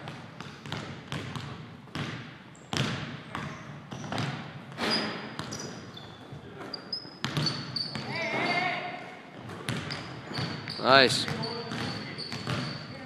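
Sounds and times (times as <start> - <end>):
basketball bouncing on hardwood floor: 0.0 - 4.4, 7.2 - 8.1, 9.4 - 12.8
short high squeaks: 4.8 - 8.8, 9.9 - 13.0.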